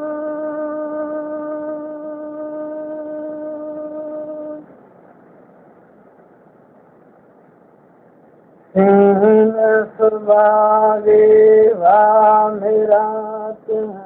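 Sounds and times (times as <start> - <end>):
faint hiss: 0.0 - 14.0
man singing folk verse: 8.8 - 14.0.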